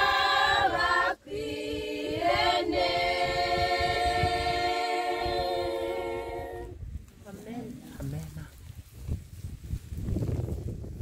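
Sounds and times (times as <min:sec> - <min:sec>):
women's choir singing a cappella: 0:00.0 - 0:06.8.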